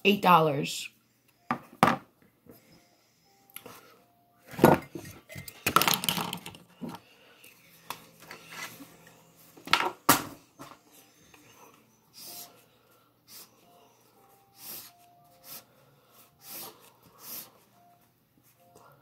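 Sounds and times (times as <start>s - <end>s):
small hard objects clattering: 5.6s - 6.6s.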